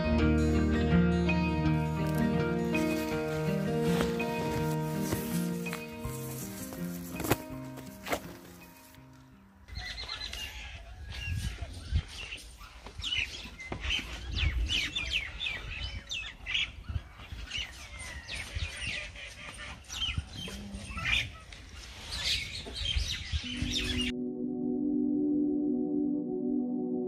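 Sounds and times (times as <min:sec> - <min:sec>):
ambient music with ringing tone: 0:00.0 - 0:10.2, 0:23.4 - 0:27.0
small birds chirping: 0:09.7 - 0:24.1.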